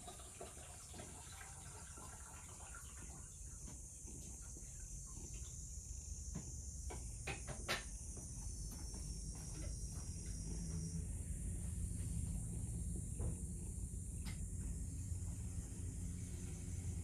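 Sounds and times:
steady high-pitched hiss: 0.0s - 17.0s
low hum: 8.0s - 17.0s.

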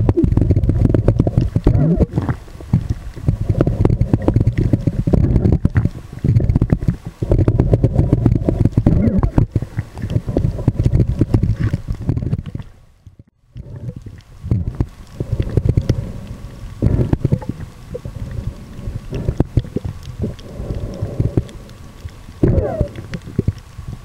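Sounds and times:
muffled water sloshing and rumbling: 0.0s - 24.0s.

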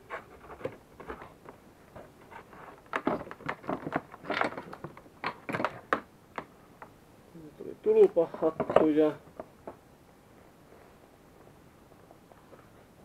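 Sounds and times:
clicks taps and rustles: 0.1s - 7.0s, 8.0s - 9.8s.

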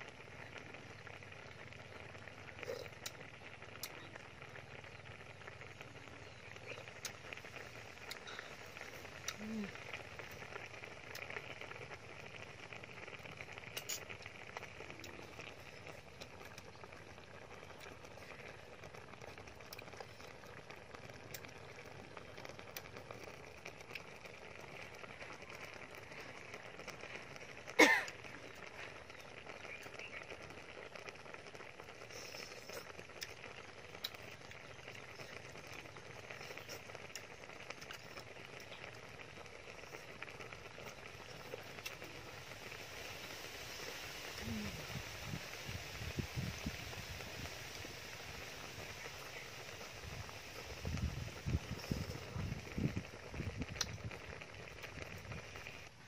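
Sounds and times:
steady hiss: 31.8s - 56.0s.

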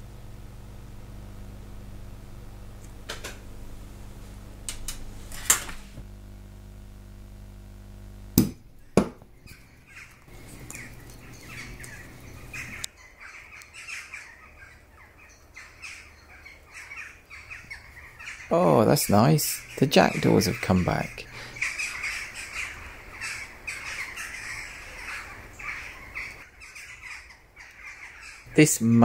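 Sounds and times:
steady low hum: 0.0s - 29.0s
jackdaws cawing: 8.8s - 29.0s.

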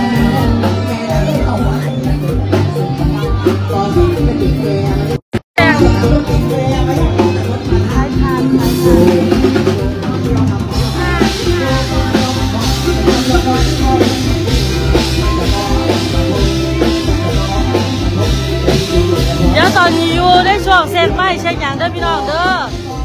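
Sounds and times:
band playing loud dance music: 0.0s - 23.0s
bass line: 0.0s - 23.0s
drum kit beat: 0.0s - 23.0s.

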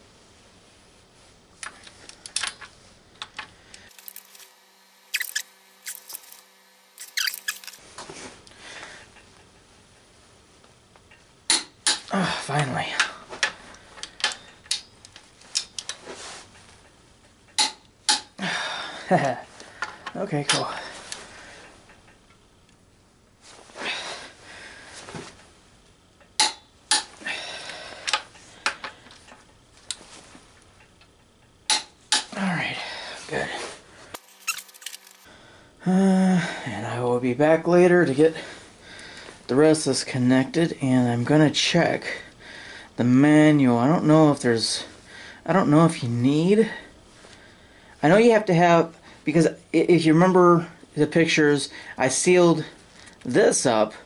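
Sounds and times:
handling rustle: 33.6s - 35.3s.

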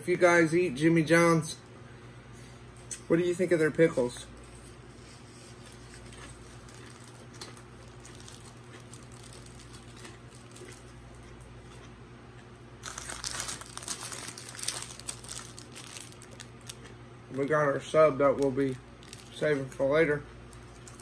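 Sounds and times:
steady low hum: 0.0s - 21.0s
faint chewing: 4.6s - 17.0s
paper wrapper crinkling: 5.7s - 11.0s, 12.8s - 16.9s, 18.3s - 19.9s, 20.5s - 21.0s.

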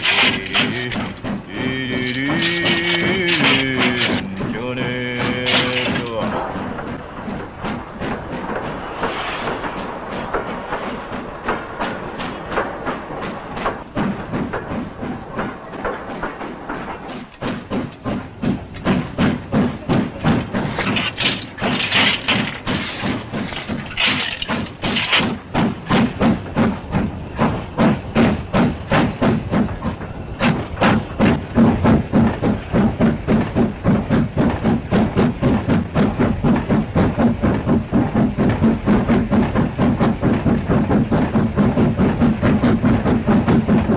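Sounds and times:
loud steam hiss bursts: 0.0s - 35.2s
steam locomotive exhaust chuffing: 0.0s - 43.9s.

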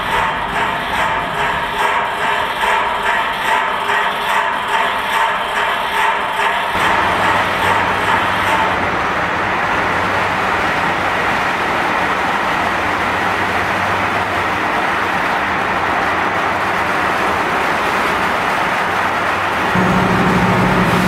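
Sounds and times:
production line machinery running: 0.0s - 21.0s
low hum: 19.7s - 21.0s.

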